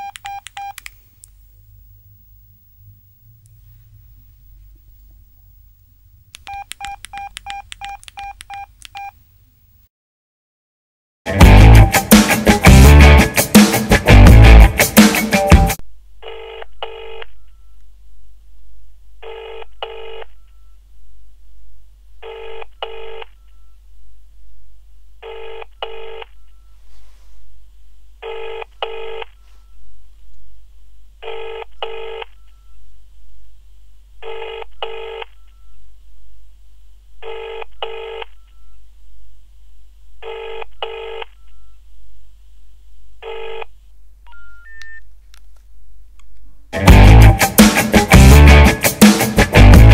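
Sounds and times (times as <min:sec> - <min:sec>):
loud music: 0:11.3 - 0:15.8, 0:46.8 - 0:49.9
phone ringback tone: 0:44.3 - 0:45.0.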